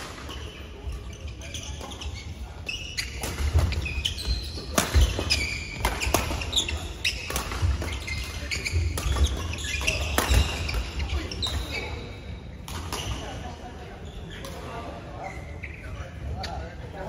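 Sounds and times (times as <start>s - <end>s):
sneakers squeaking: 0.0s - 17.0s
rackets striking shuttlecock: 3.2s - 11.8s.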